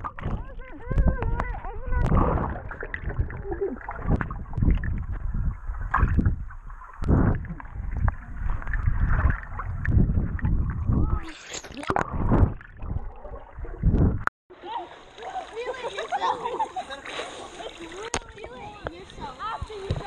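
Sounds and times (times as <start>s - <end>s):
muffled underwater churning water: 0.0s - 14.3s.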